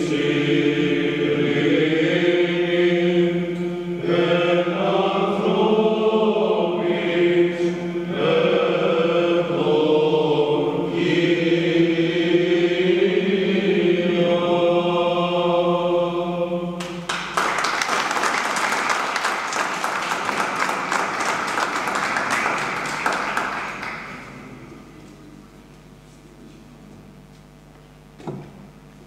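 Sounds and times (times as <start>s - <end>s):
men's choir chanting: 0.0s - 17.1s
audience applause: 16.8s - 24.6s.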